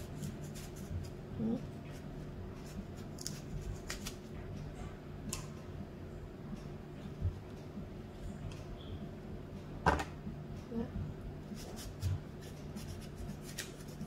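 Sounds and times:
knife cutting apple: 0:02.6 - 0:04.2, 0:11.5 - 0:14.0.

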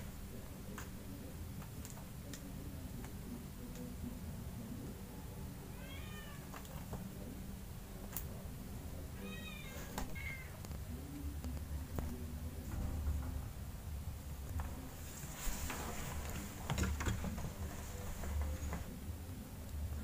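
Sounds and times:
low steady hum: 0:00.0 - 0:20.0
faint clicks: 0:01.6 - 0:03.9
kitten meowing: 0:05.7 - 0:06.5.

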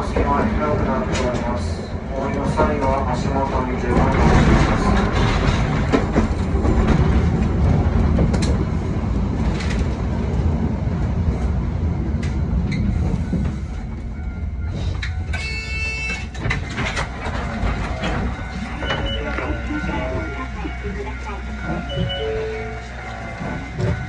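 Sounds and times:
clicks of wheels on rail: 0:00.0 - 0:10.5, 0:12.1 - 0:20.4
tram motors and wheels rumbling: 0:00.0 - 0:24.0.

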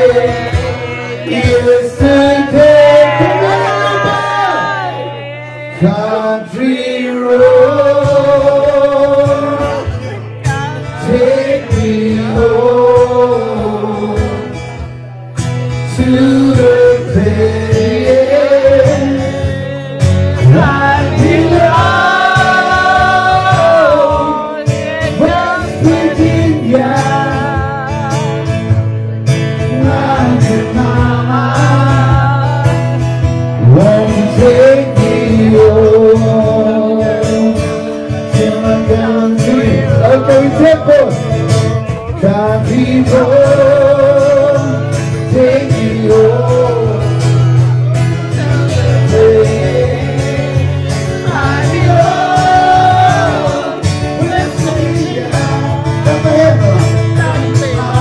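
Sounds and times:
country song singing: 0:00.0 - 0:58.0
guitar accompaniment: 0:00.0 - 0:58.0.

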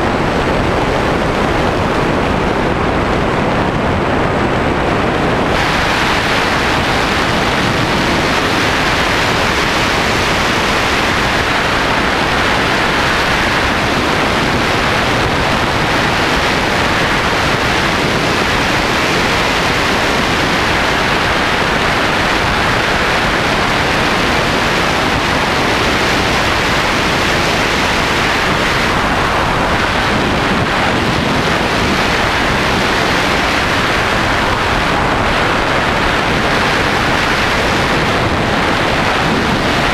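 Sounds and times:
wind rush over microphone: 0:00.0 - 0:39.9.

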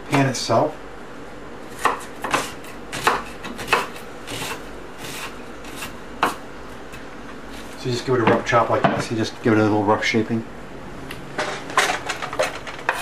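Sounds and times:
knife chopping on wooden board: 0:01.7 - 0:06.4.

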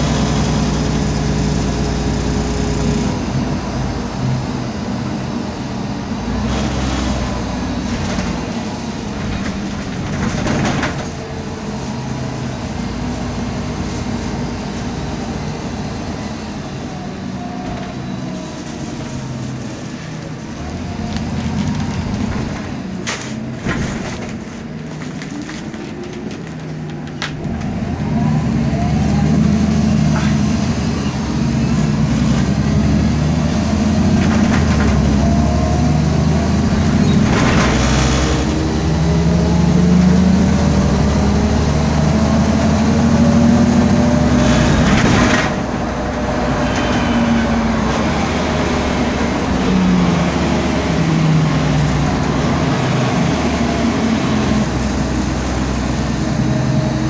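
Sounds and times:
bus engine running: 0:00.0 - 0:57.0.

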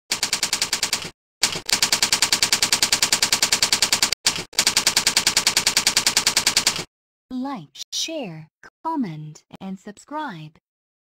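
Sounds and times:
rapid typing clicks: 0:00.1 - 0:06.9.

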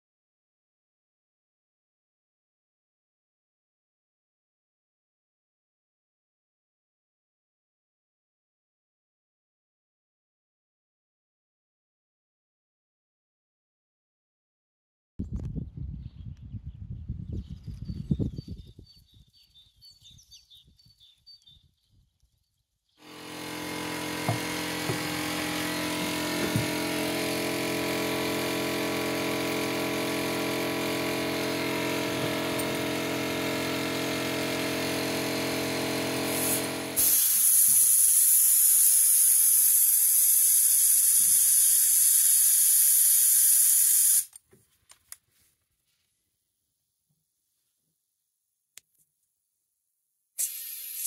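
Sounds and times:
power tool motor humming: 0:23.0 - 0:44.3
loud rushing hiss: 0:36.2 - 0:44.3.

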